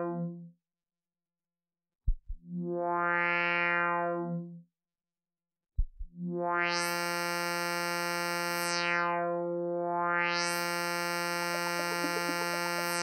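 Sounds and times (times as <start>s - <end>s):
synthesizer low thump: 2.1s - 2.5s
synthesizer low drone: 10.5s - 13.0s.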